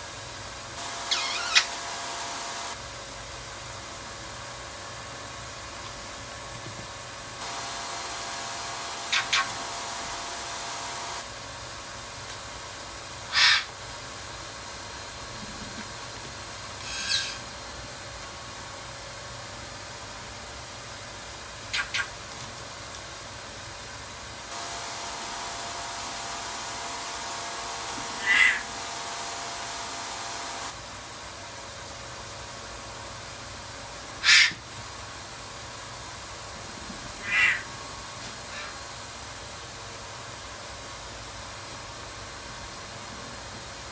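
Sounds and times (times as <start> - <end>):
steady hiss: 0.0 - 2.8, 7.0 - 13.6, 23.2 - 31.0
steady background hum: 0.0 - 43.9
parrots squawking: 0.8 - 2.7, 7.5 - 11.2, 13.3 - 13.7, 16.8 - 17.4, 24.6 - 30.7, 34.2 - 34.6, 37.2 - 37.7.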